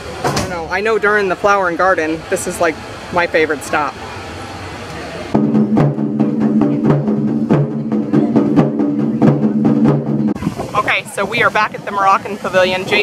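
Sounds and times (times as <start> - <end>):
background noise: 0.0 - 13.0
taiko drums struck: 5.3 - 10.4.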